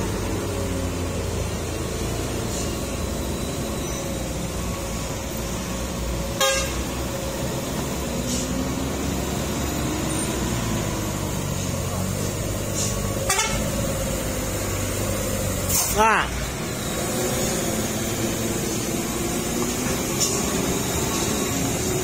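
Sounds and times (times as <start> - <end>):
truck and car engines: 0.0 - 22.0
short horn toot: 13.2 - 13.7.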